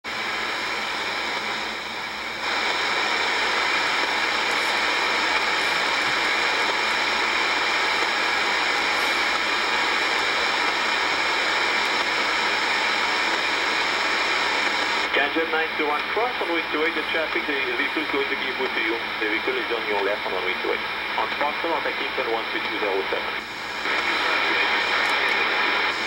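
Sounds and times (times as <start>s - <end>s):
radio hiss: 0.1s - 26.0s.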